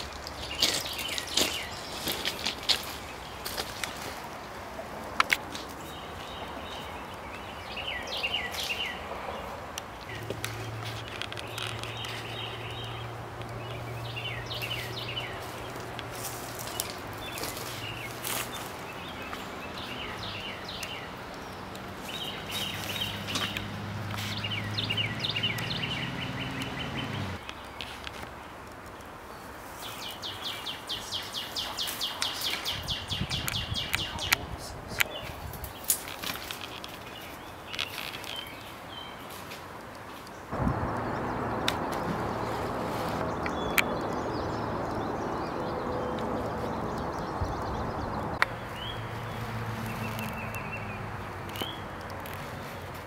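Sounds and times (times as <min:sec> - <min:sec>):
songbirds chirping and singing: 0:00.0 - 0:04.2, 0:05.1 - 0:28.0, 0:29.3 - 0:39.5, 0:40.2 - 0:52.9
steady low drone: 0:40.5 - 0:48.4.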